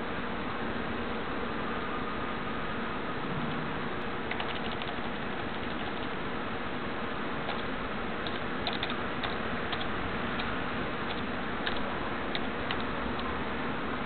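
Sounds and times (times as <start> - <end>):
computer clicks: 4.3 - 6.1, 7.5 - 13.3.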